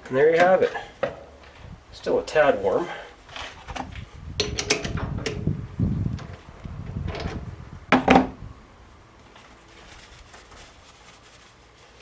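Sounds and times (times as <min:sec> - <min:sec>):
metal rattle and knocks: 0:04.4 - 0:05.4.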